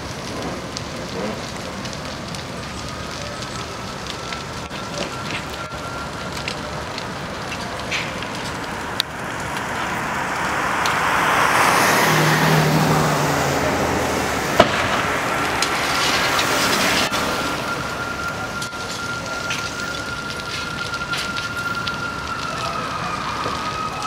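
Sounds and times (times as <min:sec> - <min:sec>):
building fire burning: 0:00.0 - 0:24.0
car passing: 0:07.8 - 0:23.9
sharp pops: 0:14.5 - 0:17.1.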